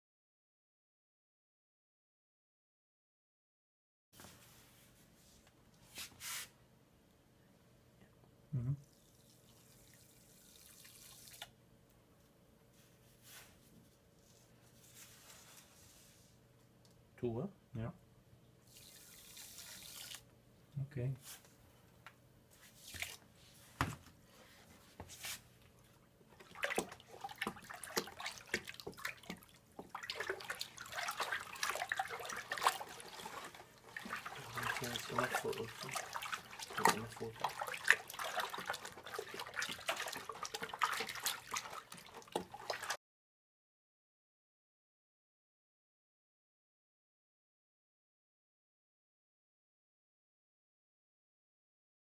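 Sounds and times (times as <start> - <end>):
stick stirring water in bucket: 18.7 - 20.3, 22.7 - 23.3, 25.0 - 43.0.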